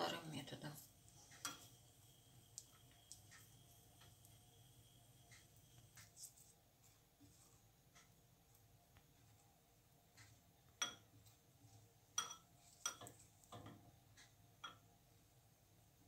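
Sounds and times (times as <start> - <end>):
spatula knocking against bowl: 12.2 - 13.8.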